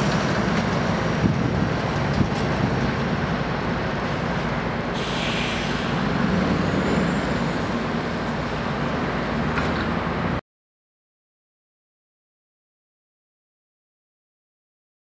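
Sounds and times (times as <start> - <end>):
truck diesel engine pulling away: 0.0 - 10.4
air hiss: 5.0 - 6.1.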